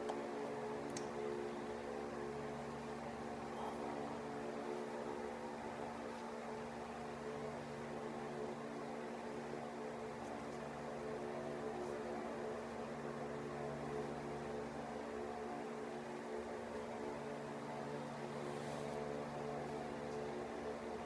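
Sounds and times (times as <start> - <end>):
machine hum: 0.0 - 21.0.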